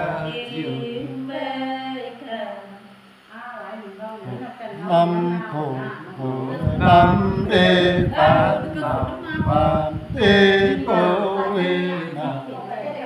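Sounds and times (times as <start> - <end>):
man singing unaccompanied: 0.0 - 1.4, 4.2 - 13.0.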